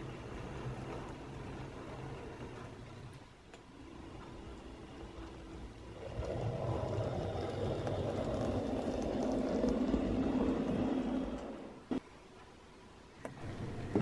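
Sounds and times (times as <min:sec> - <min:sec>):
wheels rumbling on rails: 0:00.0 - 0:12.6, 0:13.4 - 0:14.0
model train motor whirring: 0:03.8 - 0:11.7.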